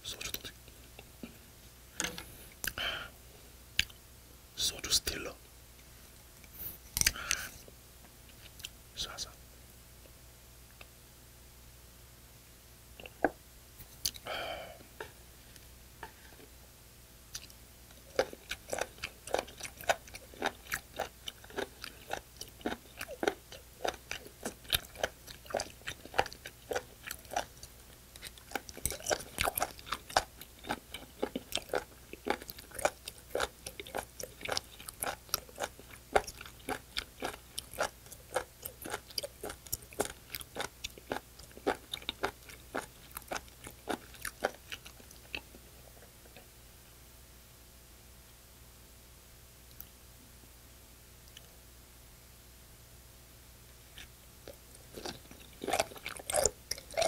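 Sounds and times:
voiced exhale: 0:02.3 - 0:03.2, 0:06.6 - 0:07.6, 0:14.2 - 0:14.8
wet crunchy chewing: 0:17.3 - 0:46.4, 0:54.0 - 0:57.0.

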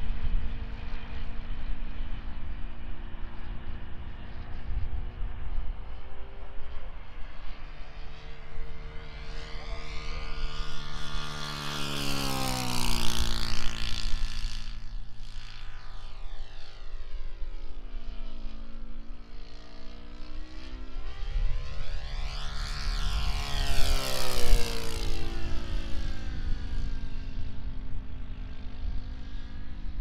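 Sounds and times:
wind rumble on microphone: 0:00.0 - 0:07.7, 0:20.9 - 0:30.0
model airplane engine drone: 0:00.0 - 0:30.0.

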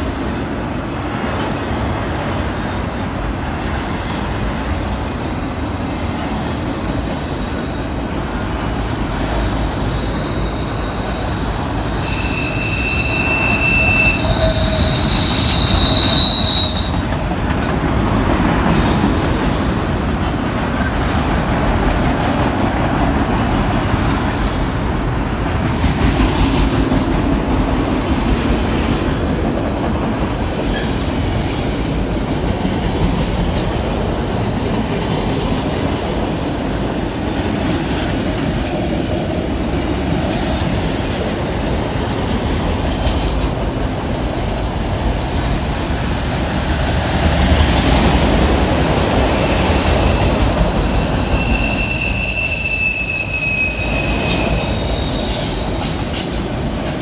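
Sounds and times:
freight train rumbling: 0:00.0 - 0:57.0
train wheels squealing: 0:08.4 - 0:17.2, 0:18.5 - 0:19.4, 0:31.9 - 0:34.8, 0:48.8 - 0:57.0.

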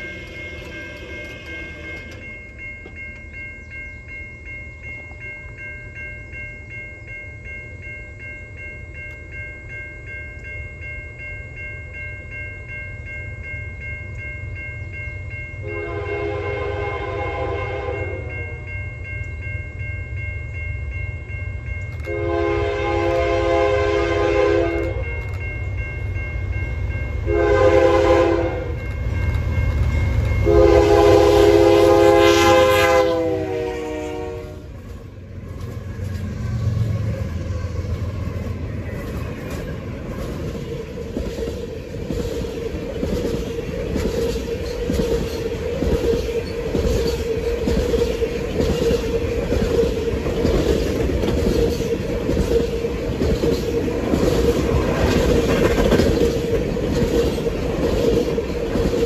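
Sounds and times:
crossing bell ringing: 0:00.0 - 0:59.0
train rumble: 0:00.0 - 0:59.0
train horn blasts: 0:15.6 - 0:18.6, 0:22.0 - 0:25.1, 0:27.2 - 0:28.8, 0:30.4 - 0:34.8.

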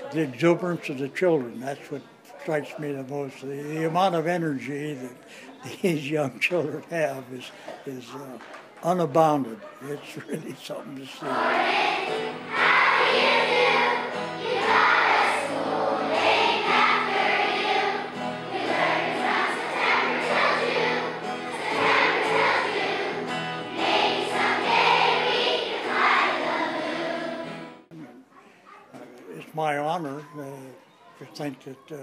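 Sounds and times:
children's choir singing: 0:11.0 - 0:27.9.

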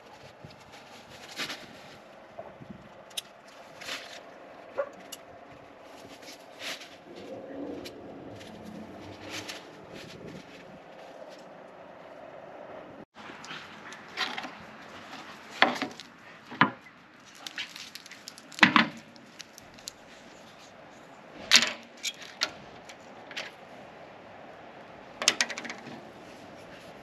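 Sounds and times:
objects clicking and knocking: 0:25.2 - 0:26.0.

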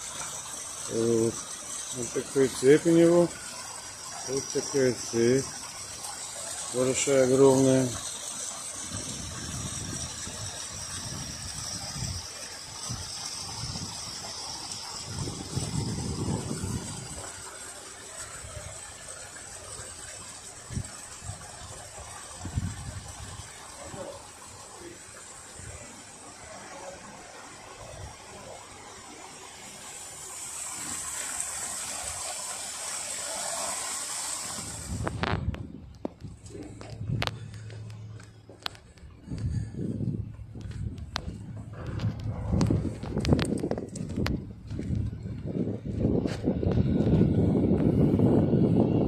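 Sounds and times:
steady rushing hiss: 0:00.0 - 0:44.7
water churning and foaming: 0:00.0 - 0:49.0
low rumble: 0:34.8 - 0:49.0.

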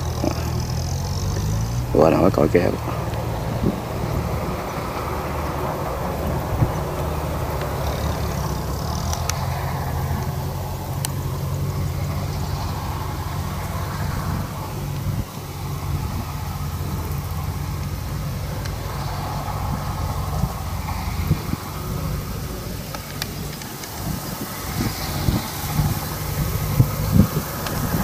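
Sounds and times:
diesel tractor engine running: 0:00.0 - 0:28.0.

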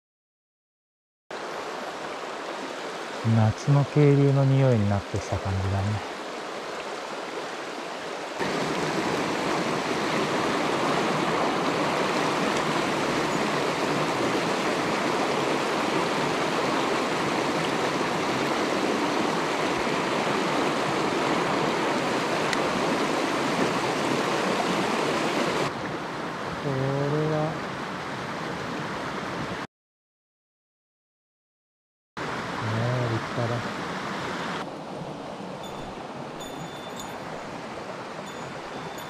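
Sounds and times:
stream rushing over rocks: 0:01.3 - 0:29.6, 0:32.2 - 0:39.0.

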